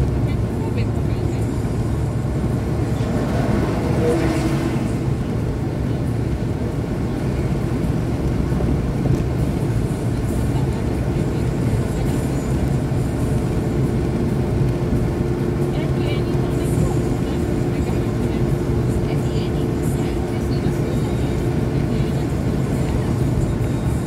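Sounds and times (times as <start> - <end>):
car cabin road and engine noise: 0.0 - 24.0.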